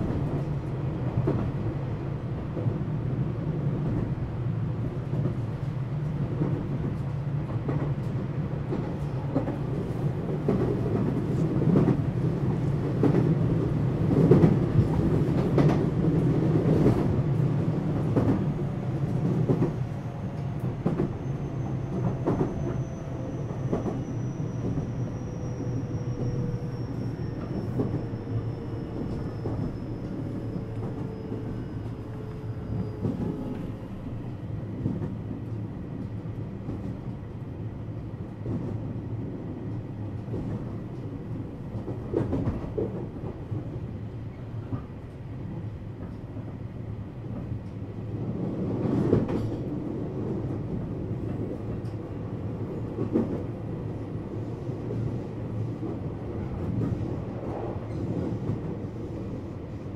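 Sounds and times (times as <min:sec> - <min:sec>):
train wheels rumbling on rail: 0:00.0 - 0:59.9
train clatter: 0:06.3 - 0:33.8, 0:39.6 - 0:43.9, 0:47.3 - 0:59.5.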